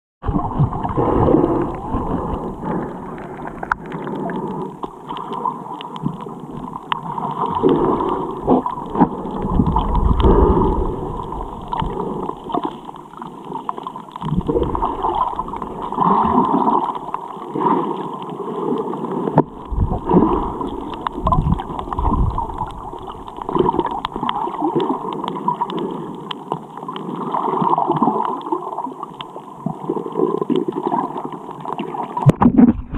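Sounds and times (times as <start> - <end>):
water gurgling and sloshing: 0.2 - 32.9
low rumbles: 8.3 - 12.4, 19.5 - 23.9.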